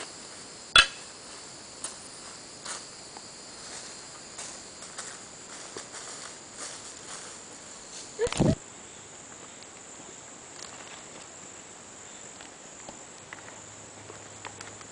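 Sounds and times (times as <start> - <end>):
crickets droning: 0.0 - 14.9.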